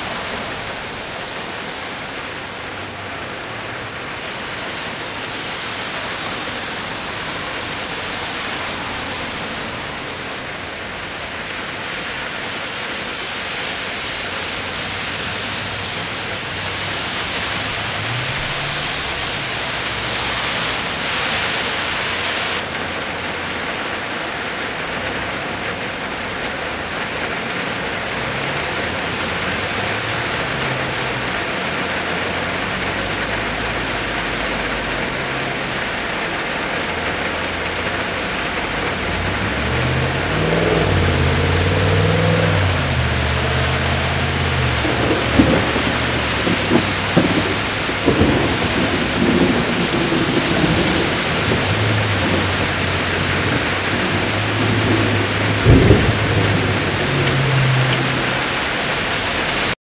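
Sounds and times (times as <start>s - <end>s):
steady rain: 0.0s - 59.8s
low rumble of thunder: 38.9s - 58.6s.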